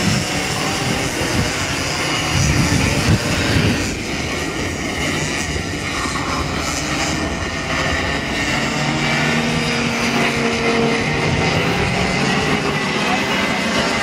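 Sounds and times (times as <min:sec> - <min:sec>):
racing kart engines passing: 0:00.0 - 0:14.0
steady engine note: 0:00.0 - 0:14.0.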